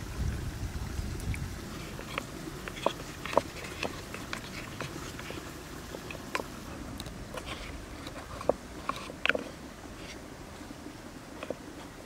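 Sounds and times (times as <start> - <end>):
spoon stirring in liquid: 1.7 - 6.6.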